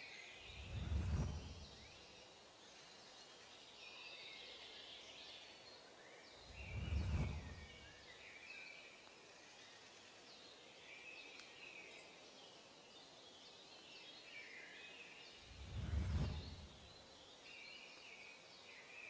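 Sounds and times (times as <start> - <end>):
faint outdoor ambience: 0.0 - 19.0
low whooshing: 0.5 - 1.9, 6.5 - 7.9, 15.5 - 16.9.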